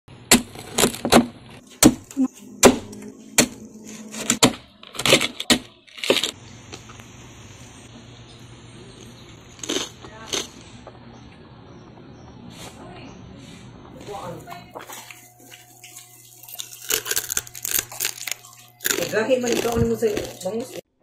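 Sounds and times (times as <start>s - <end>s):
faint steady background hum: 0.1s - 21.0s
cleaver chopping on wooden board: 0.3s - 3.6s.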